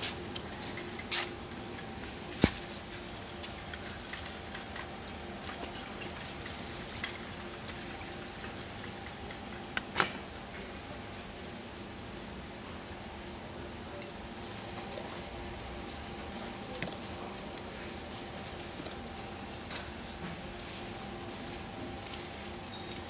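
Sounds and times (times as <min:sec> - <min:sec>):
small clicks and rattles: 0:00.0 - 0:10.8
background hum: 0:00.0 - 0:23.0.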